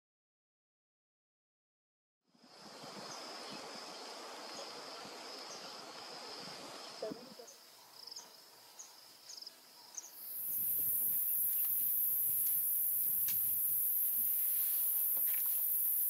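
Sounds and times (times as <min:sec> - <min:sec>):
insect trilling: 0:10.2 - 0:16.0
very high shrill hiss: 0:10.2 - 0:16.0.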